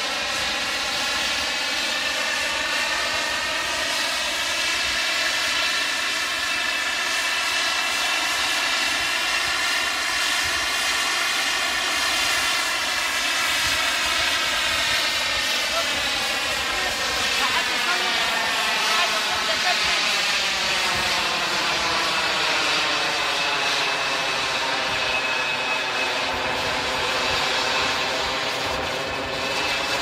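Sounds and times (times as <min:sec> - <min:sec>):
model jet engine whine: 0:00.0 - 0:30.0.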